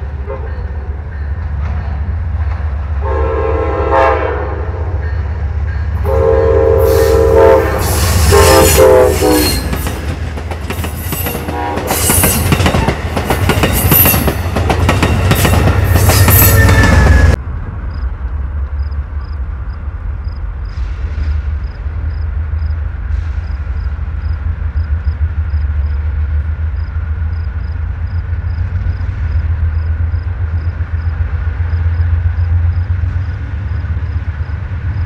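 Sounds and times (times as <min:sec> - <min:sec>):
train horn blasts: 0:00.0 - 0:01.0, 0:02.9 - 0:10.0, 0:11.1 - 0:12.6, 0:15.3 - 0:17.4.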